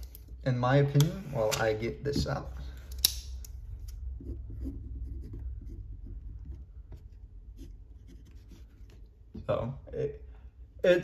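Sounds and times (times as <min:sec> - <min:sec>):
pen scratching on paper: 0:04.1 - 0:09.1.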